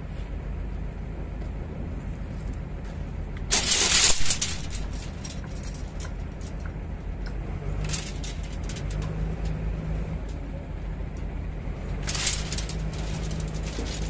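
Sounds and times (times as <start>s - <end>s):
low engine hum: 0.0s - 14.0s
steel bars clanking onto concrete: 3.5s - 6.7s, 7.7s - 9.6s, 12.0s - 14.0s.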